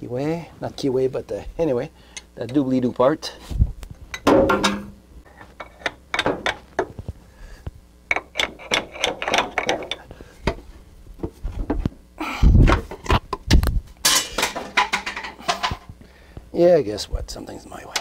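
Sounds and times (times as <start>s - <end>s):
metal-on-metal clicks and knocks: 4.1s - 4.9s, 5.6s - 6.9s, 8.1s - 10.0s
heavy metal thumps: 4.2s - 5.0s.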